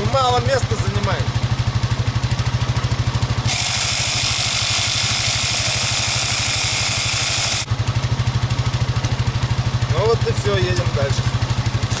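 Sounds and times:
engine idling: 0:00.0 - 0:12.0
compressed air hissing: 0:03.5 - 0:07.7.

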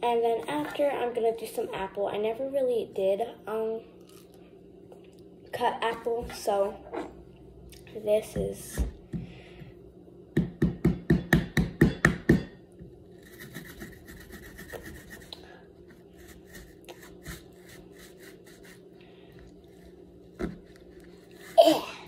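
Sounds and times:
knife sawing into apple: 0:13.2 - 0:18.8.

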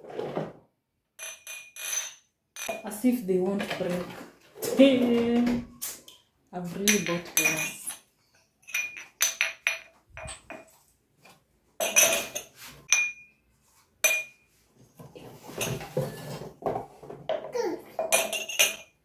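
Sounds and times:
glassware clinking: 0:01.2 - 0:02.8, 0:06.9 - 0:10.6, 0:11.8 - 0:13.3, 0:14.0 - 0:14.4, 0:18.0 - 0:19.0.

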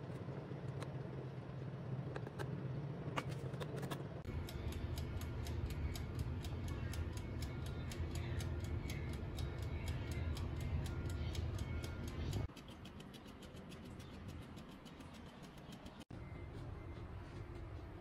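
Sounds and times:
oven humming: 0:00.0 - 0:18.0
dial timer ticking: 0:04.2 - 0:16.1.

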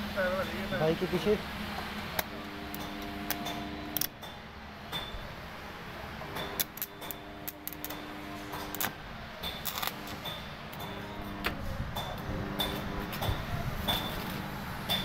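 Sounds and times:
arc welding hum: 0:00.0 - 0:15.0
welding arc crackles: 0:06.3 - 0:11.6.

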